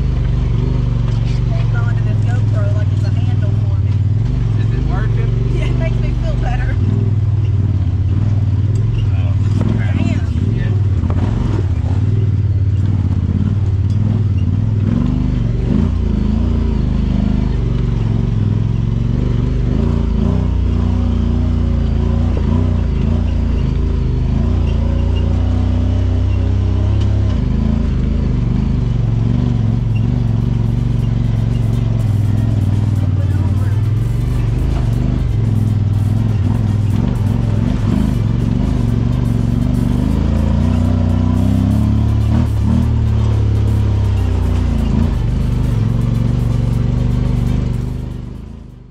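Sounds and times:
utility vehicle engine revving: 0:00.0 - 0:48.9
knocks and rattles: 0:29.6 - 0:48.9.

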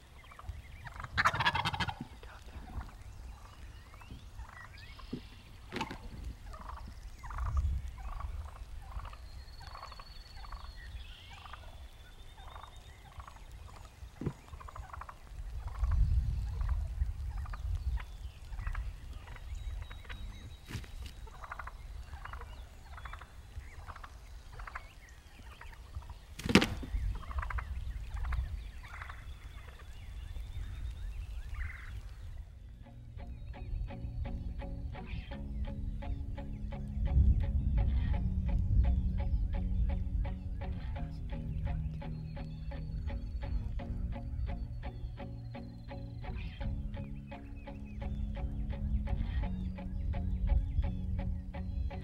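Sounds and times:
turkeys clucking: 0:00.0 - 0:32.6
low rumbles: 0:26.5 - 0:52.0.

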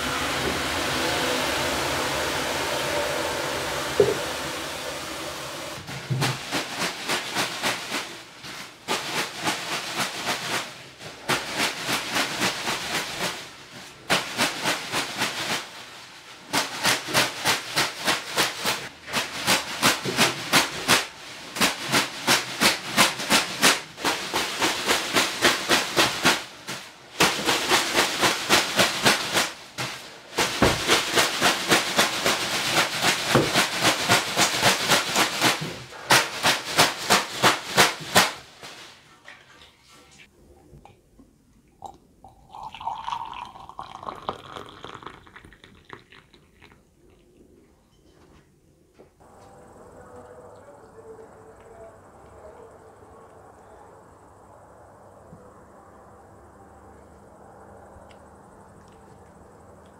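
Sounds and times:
bath broom swishing strokes: 0:00.0 - 0:40.3.

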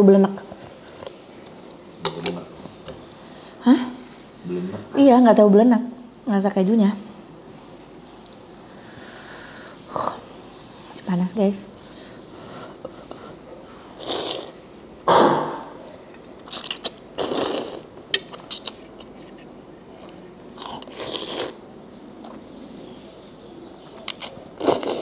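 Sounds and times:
person slurping noodles: 0:14.0 - 0:14.5, 0:17.2 - 0:17.8, 0:24.6 - 0:25.0.

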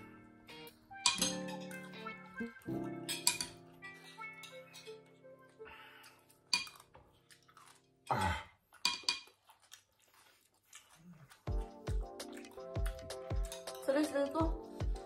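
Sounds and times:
soft background music: 0:00.0 - 0:07.8, 0:11.5 - 0:15.0
cutlery clinking on ceramic: 0:01.0 - 0:02.0, 0:03.1 - 0:03.6, 0:06.5 - 0:06.9, 0:08.8 - 0:09.4
chewing: 0:05.4 - 0:13.8.

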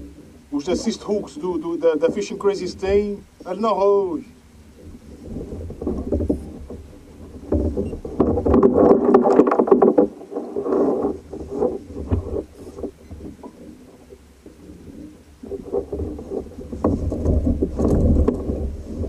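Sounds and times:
wind rumble on microphone: 0:00.0 - 0:03.4, 0:04.3 - 0:19.0
rustling and knocks on kayak hull: 0:04.6 - 0:19.0.

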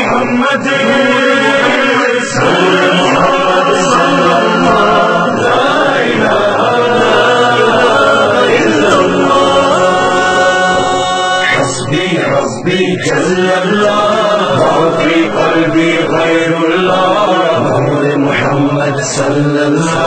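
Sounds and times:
voices chanting and singing: 0:00.0 - 0:20.0.

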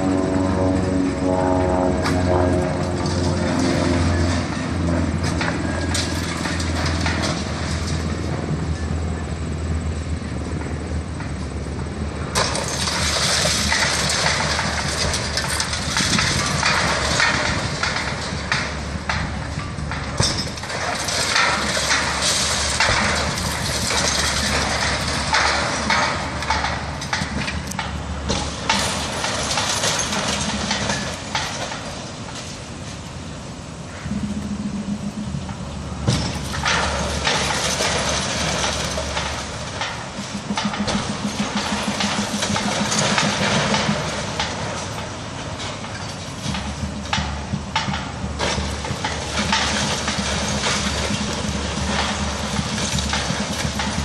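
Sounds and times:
diesel engine humming: 0:00.0 - 0:54.0
clattering crash of rubble: 0:05.2 - 0:08.2, 0:12.3 - 0:32.5, 0:36.0 - 0:54.0.

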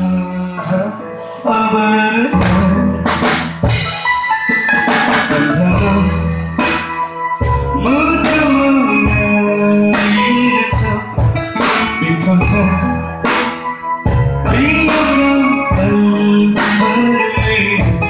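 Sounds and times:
drum kit: 0:00.0 - 0:18.0
electronic keyboard chords: 0:00.0 - 0:18.0.

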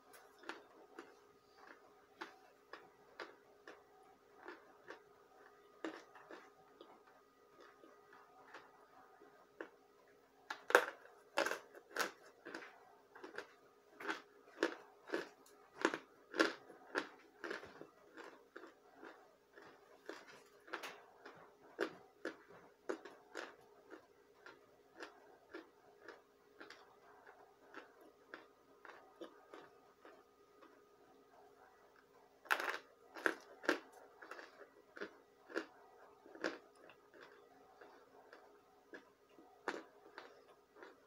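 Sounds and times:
person chewing crunchy food: 0:00.0 - 0:09.8, 0:10.5 - 0:41.0.

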